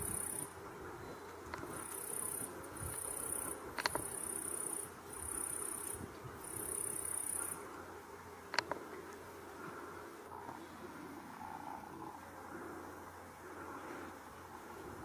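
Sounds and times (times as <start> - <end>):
high-pitched insect trilling: 0.0 - 0.5, 1.8 - 7.6.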